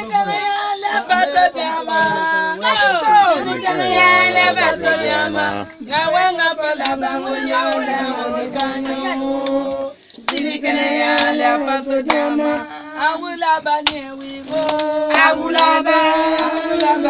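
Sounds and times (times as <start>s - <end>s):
women singing long held notes: 0.0s - 17.0s
hand claps: 5.7s - 12.4s, 13.6s - 17.0s.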